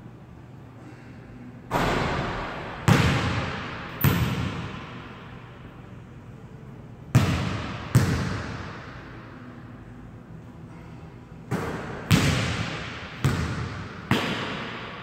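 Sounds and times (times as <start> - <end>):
basketball striking rim: 1.7 - 5.1, 11.5 - 14.9
basketball bouncing on wooden floor: 13.2 - 14.4.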